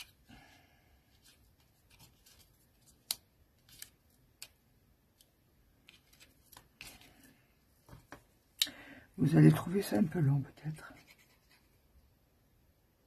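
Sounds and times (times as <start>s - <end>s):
scissors snipping paper: 2.8s - 4.6s.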